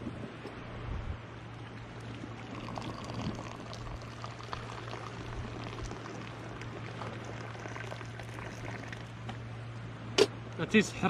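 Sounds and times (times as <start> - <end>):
tea pouring into a glass: 1.8 - 9.2.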